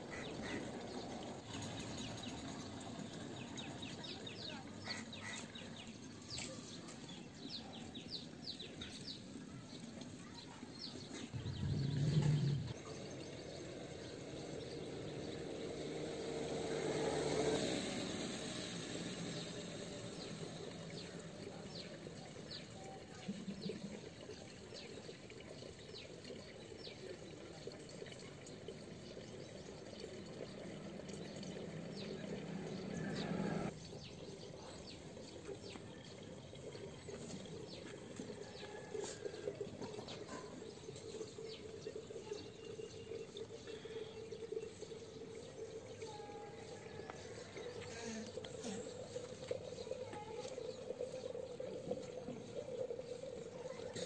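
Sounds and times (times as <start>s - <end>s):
faint outdoor background noise: 0.0s - 54.0s.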